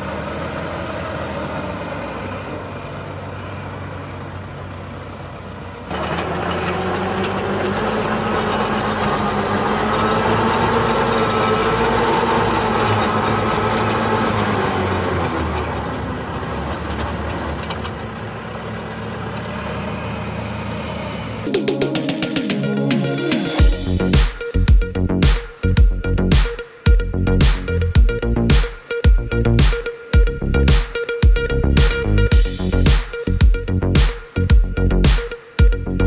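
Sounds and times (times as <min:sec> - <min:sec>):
tractor diesel engine running: 0:00.0 - 0:36.0
post-hole digger boring into soil: 0:05.9 - 0:15.3.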